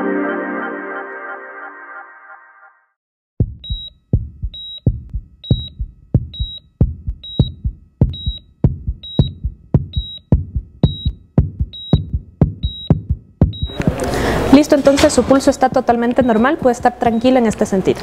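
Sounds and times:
heart monitor beep: 3.4 - 14.1, 15.7 - 17.6
heartbeat double thump: 3.4 - 14.1, 15.0 - 17.7.

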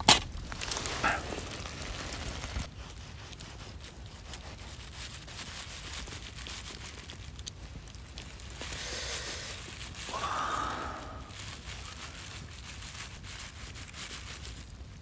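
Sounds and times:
knife carving crisp skin: 0.0 - 8.8
campfire crackling: 0.0 - 15.0.

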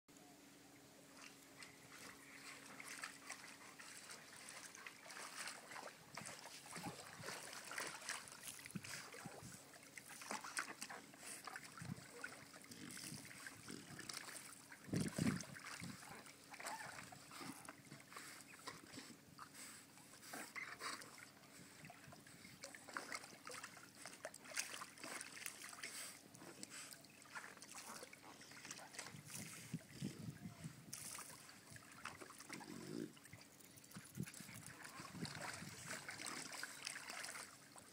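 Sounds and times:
dog splashing in water: 1.2 - 18.0, 22.6 - 29.7, 30.9 - 33.4, 34.0 - 37.9
deep splash: 1.9 - 9.5.

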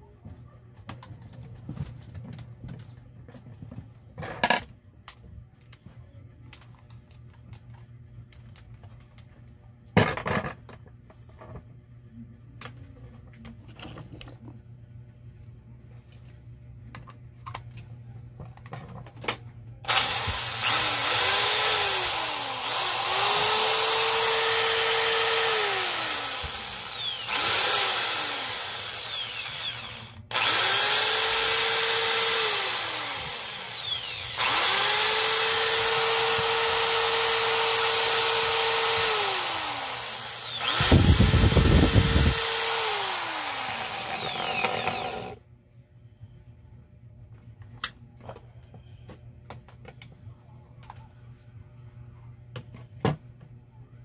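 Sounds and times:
electric drill motor whining: 19.9 - 45.4.

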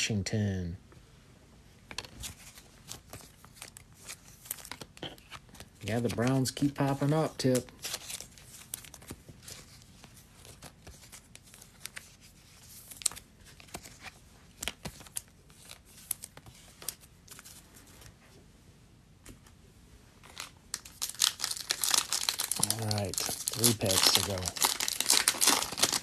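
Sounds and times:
foil pack crinkling: 20.2 - 26.0.

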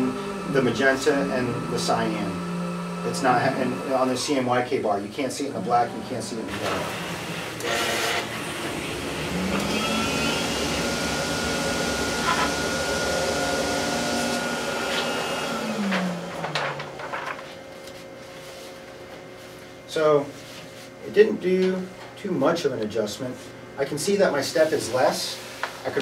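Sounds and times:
higher whine: 0.0 - 7.7
printer motor whine: 0.0 - 18.0.

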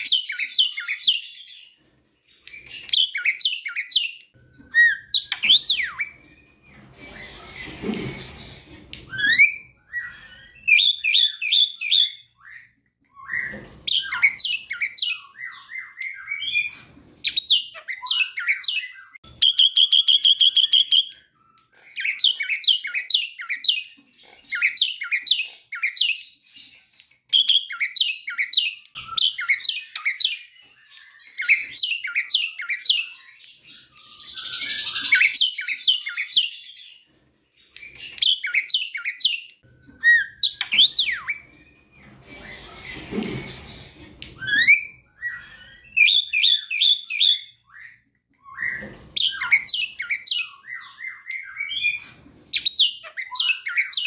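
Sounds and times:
bird singing chattering song: 2.3 - 8.0, 37.6 - 43.1, 44.3 - 54.0.

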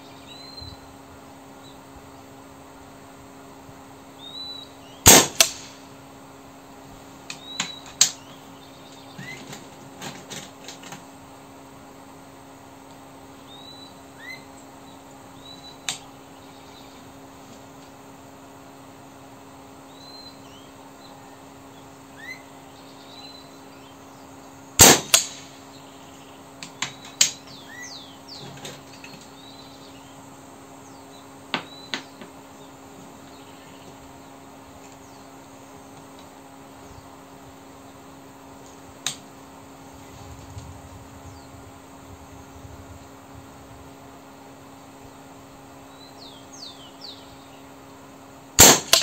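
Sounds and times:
steady low hum: 0.0 - 49.0
birds chirping: 4.1 - 6.0, 7.2 - 10.0, 13.2 - 43.3, 43.9 - 48.3
air rifle shot: 5.1 - 5.8, 24.8 - 25.6, 48.6 - 49.0.

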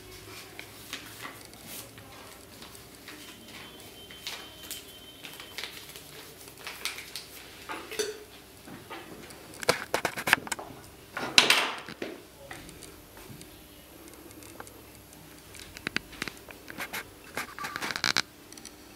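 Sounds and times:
paper rustling: 0.1 - 7.7, 9.6 - 10.6, 15.6 - 18.2
glass jar clinking: 7.9 - 8.2.

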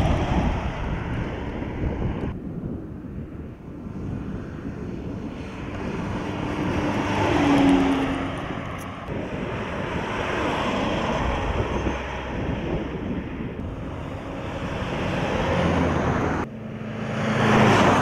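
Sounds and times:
pickup truck driving past: 5.7 - 18.0.

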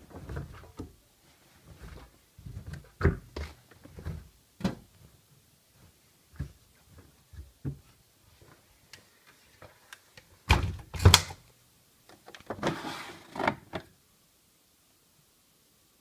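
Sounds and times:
detergent drawer sliding open: 12.5 - 13.8.

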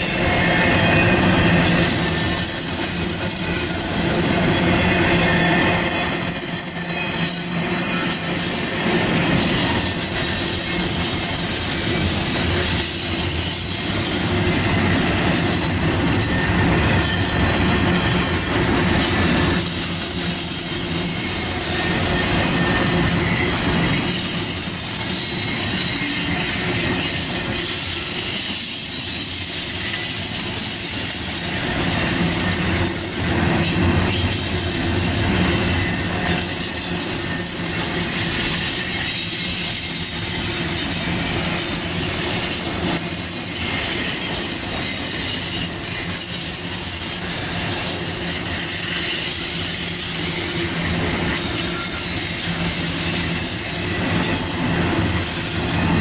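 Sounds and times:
freight train wheels rolling on rails: 0.0 - 56.0.

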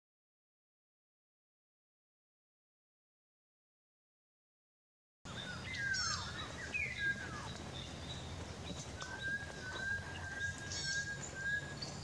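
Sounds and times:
birds whistling: 5.3 - 12.0
low background rumble: 5.3 - 12.0.

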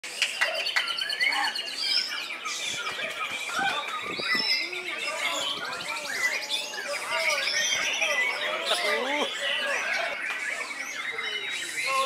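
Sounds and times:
chorus of songbirds: 0.0 - 12.0
songbird whistles and trills: 0.1 - 12.0.

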